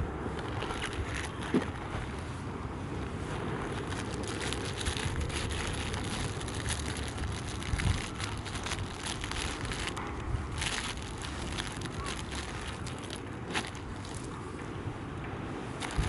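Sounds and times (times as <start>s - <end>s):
wind rumble on microphone: 0.0s - 16.0s
pebbles rattling: 3.7s - 14.3s, 15.8s - 16.0s.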